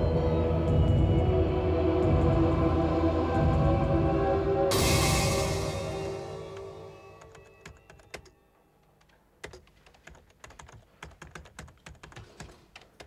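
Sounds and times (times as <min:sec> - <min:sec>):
background music: 0:00.0 - 0:08.4
typing on computer keyboard: 0:07.2 - 0:08.4, 0:09.0 - 0:13.0.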